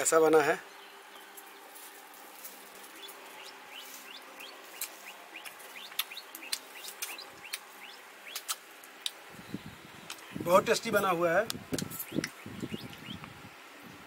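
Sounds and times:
small birds chirping: 0.0 - 14.0
sharp clicks: 4.8 - 7.6, 8.3 - 9.2.

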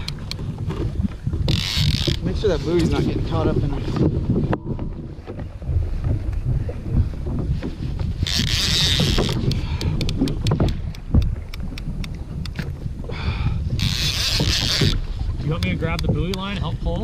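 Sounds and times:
sharp irregular ticks: 0.0 - 0.5, 1.5 - 3.0, 8.2 - 12.7, 13.8 - 16.6
water slapping a hull: 0.0 - 17.0
wind buffeting microphone: 0.0 - 17.0.

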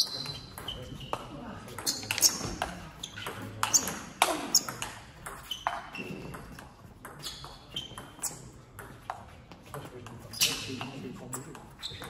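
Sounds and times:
table tennis ball hits: 0.0 - 11.6.

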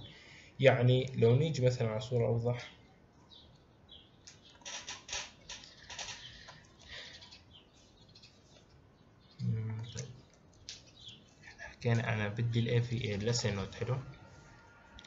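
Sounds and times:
small birds chirping: 0.1 - 14.4
mouse and keyboard clicking: 4.2 - 7.4.

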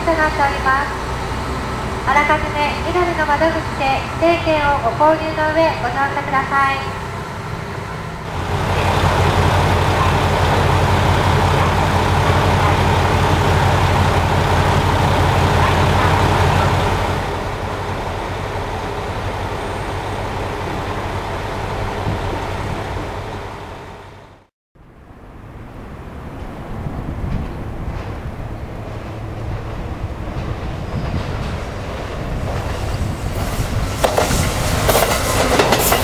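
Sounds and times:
diesel engine idling: 7.0 - 21.4.

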